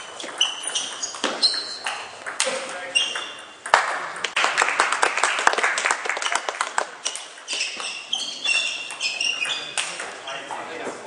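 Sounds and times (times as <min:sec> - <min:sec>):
shoes squeaking on floor: 0:00.0 - 0:03.6, 0:07.1 - 0:11.0
spectators clapping: 0:03.7 - 0:07.2.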